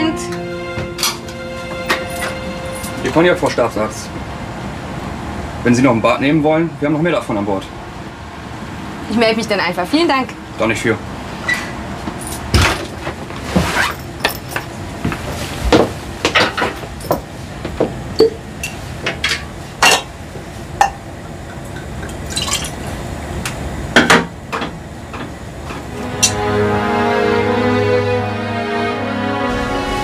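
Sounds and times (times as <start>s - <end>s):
glass bottle and cup clinking: 18.2s - 18.8s.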